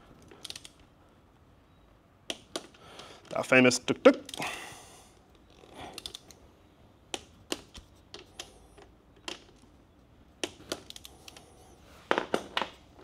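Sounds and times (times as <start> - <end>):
tools and parts clicking: 0.2 - 0.9, 5.3 - 6.4, 10.4 - 11.5.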